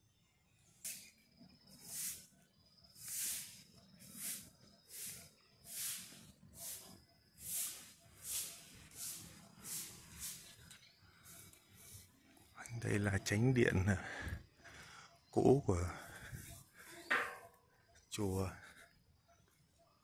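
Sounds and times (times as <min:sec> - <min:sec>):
broom sweeping pavement: 0:01.7 - 0:12.2.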